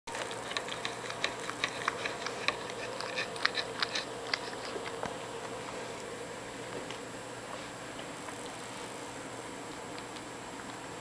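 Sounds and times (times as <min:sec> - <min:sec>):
cat licking with clicking laps: 0:00.1 - 0:05.6, 0:09.7 - 0:10.8.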